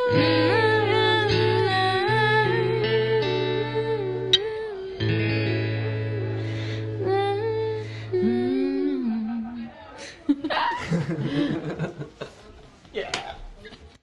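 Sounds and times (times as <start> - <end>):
woman humming: 5.8 - 9.6.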